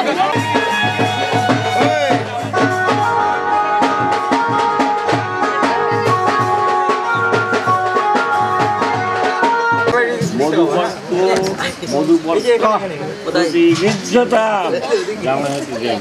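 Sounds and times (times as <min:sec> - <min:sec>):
steady drum beat: 0:00.0 - 0:12.3
held melody notes: 0:00.6 - 0:11.0.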